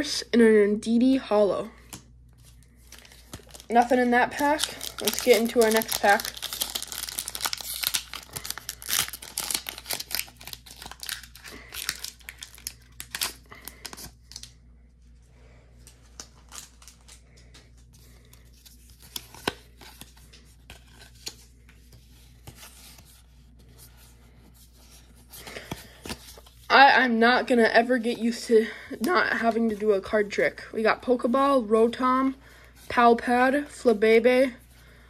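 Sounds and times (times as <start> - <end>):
cards rustling and clicking: 1.8 - 14.6, 15.8 - 24.0, 24.6 - 26.6
foil wrapper tearing and crinkling: 2.9 - 14.5, 16.2 - 17.2.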